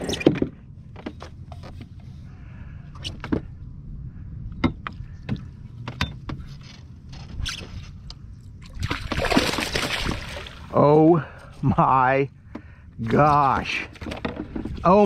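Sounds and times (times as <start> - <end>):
low rumble: 0.0 - 7.2.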